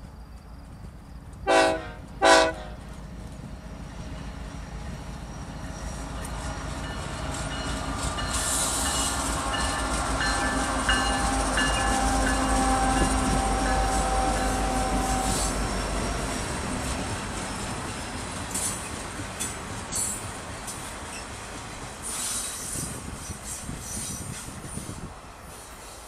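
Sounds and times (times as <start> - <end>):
train rolling past: 0.0 - 26.0
locomotive air horn blasts: 1.5 - 2.8, 11.0 - 15.7.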